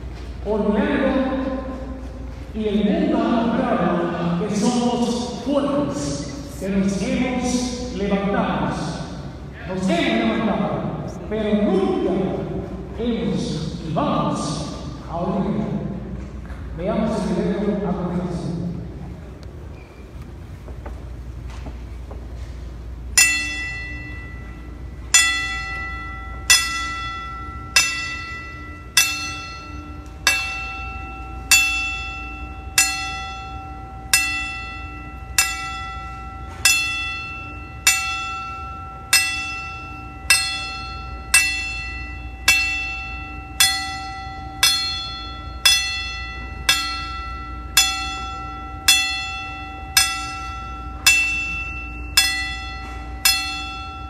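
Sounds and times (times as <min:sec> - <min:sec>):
low hum: 0:00.0 - 0:54.0
bell tolling: 0:22.9 - 0:54.0.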